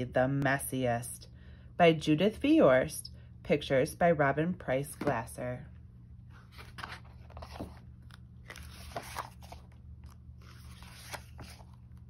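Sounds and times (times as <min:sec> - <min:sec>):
paper pages rustling: 0:06.3 - 0:12.0.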